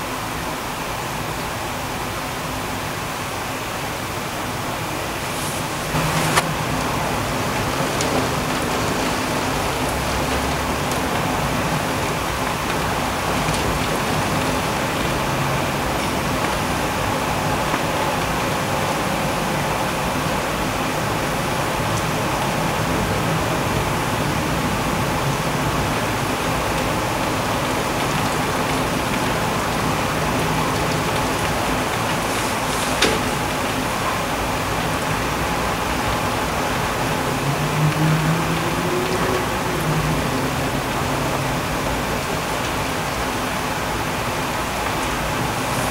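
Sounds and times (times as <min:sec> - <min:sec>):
heavy rain on leaves and roofs: 0:00.0 - 0:45.9
sharp raindrop ticks: 0:05.9 - 0:18.5.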